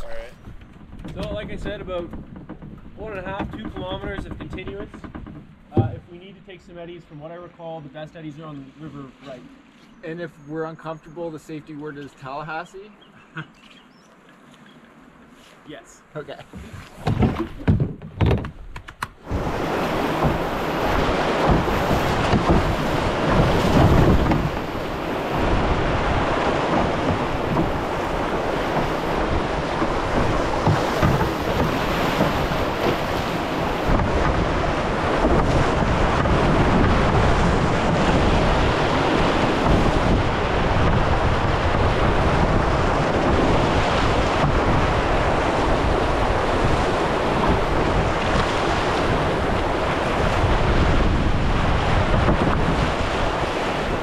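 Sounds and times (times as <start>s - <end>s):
whitewater rushing: 19.2s - 54.0s.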